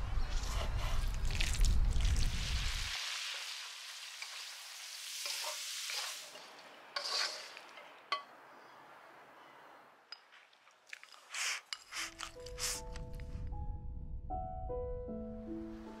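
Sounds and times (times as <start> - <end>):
meat sizzling in hot oil: 1.3 - 6.4
spoon scraping: 7.0 - 8.2, 10.1 - 13.2.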